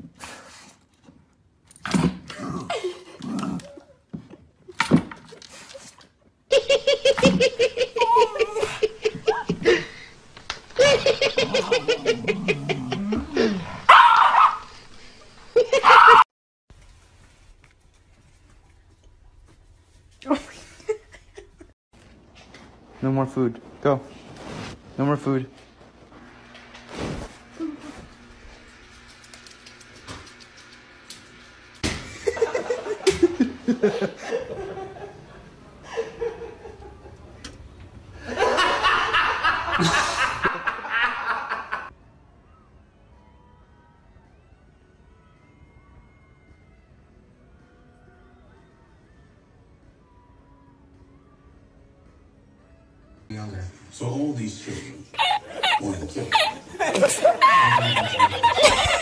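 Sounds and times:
person laughing: 6.5s - 10.1s, 10.7s - 13.8s, 38.4s - 41.9s, 55.1s - 59.0s.

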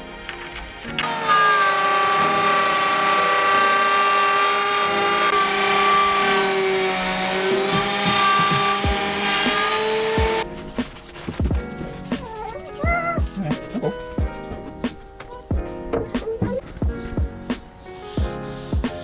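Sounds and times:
router whining: 1.0s - 10.4s.

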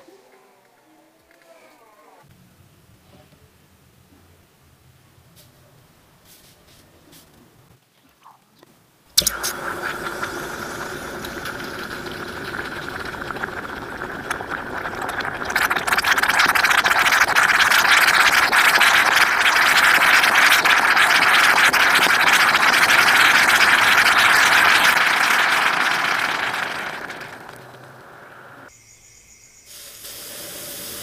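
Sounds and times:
liquid hissing and fizzing: 9.2s - 28.7s, 29.7s - 31.0s.

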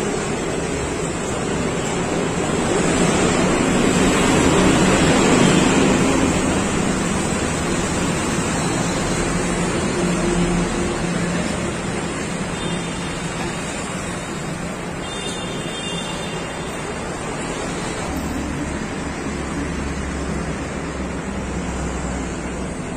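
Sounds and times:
traffic rushing: 0.0s - 22.9s.

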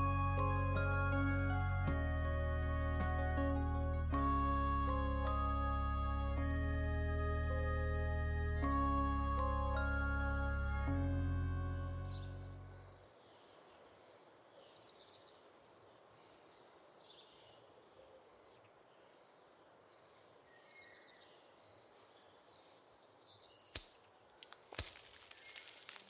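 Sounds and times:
background music: 0.0s - 13.0s
faint bird chirps: 12.1s - 23.8s.

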